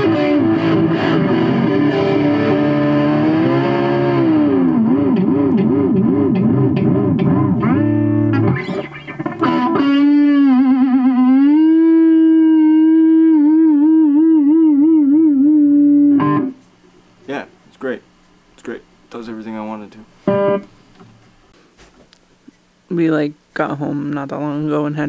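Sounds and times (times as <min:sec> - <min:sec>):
electric guitar through an amp: 0:00.0 - 0:16.6, 0:20.3 - 0:20.7.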